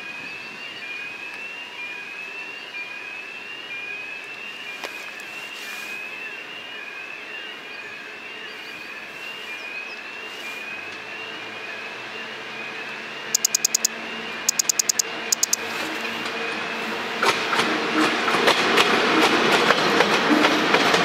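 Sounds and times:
electric train running on rails: 0.0 - 21.0
rapid shrill pulses: 13.4 - 13.9.

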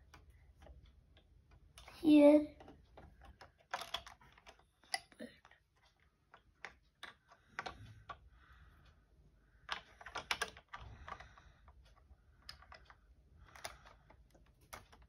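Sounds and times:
plastic bricks clicking: 2.6 - 8.2, 9.6 - 15.0.

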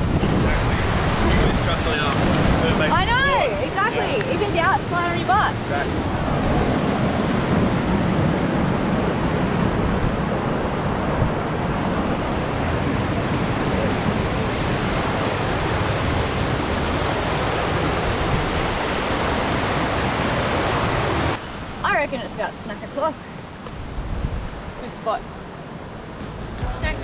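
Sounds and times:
creek rushing over boulders: 0.0 - 7.5.

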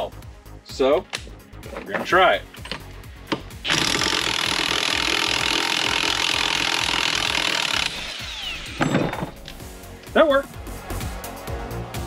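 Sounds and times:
impact wrench hammering: 2.6 - 9.6.

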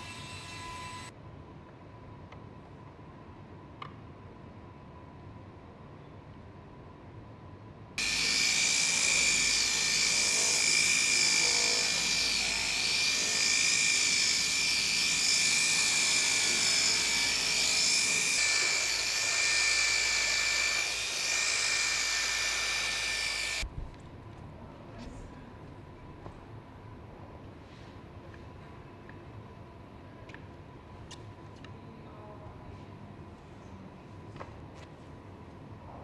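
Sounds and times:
rotary sander whining: 8.0 - 23.6.

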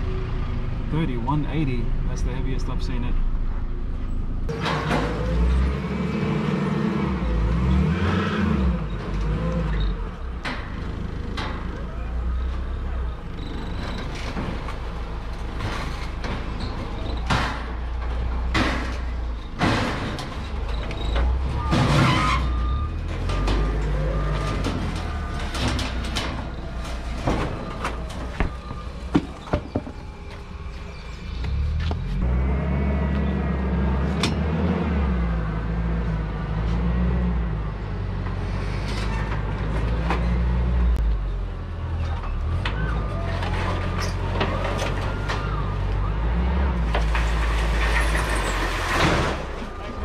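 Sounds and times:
vehicle engines rumbling: 0.0 - 50.0
sharp knocks and clatters: 14.0 - 30.0.

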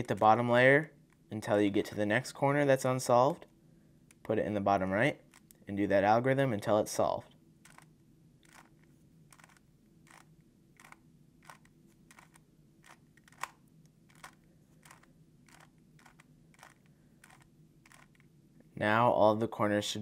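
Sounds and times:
speed cube clicking: 7.6 - 18.3.

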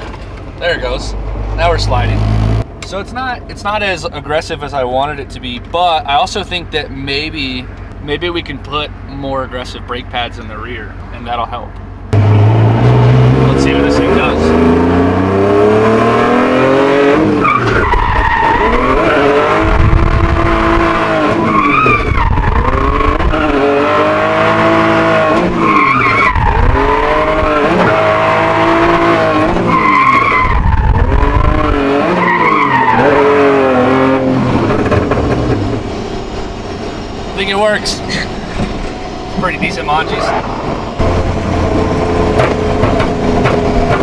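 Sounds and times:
car engine revving: 0.0 - 3.0, 12.1 - 44.0
tyres skidding and squealing: 12.2 - 44.0.

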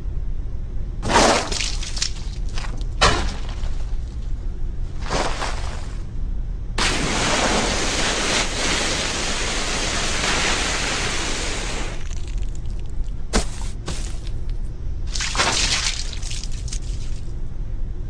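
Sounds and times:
rushing hiss of spraying grit: 6.8 - 12.0
water pouring down: 6.8 - 12.8.

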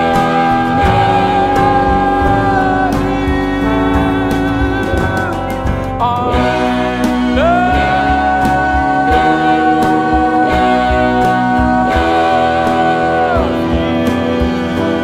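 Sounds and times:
band playing a song: 0.0 - 15.0
long held note: 0.0 - 15.0.

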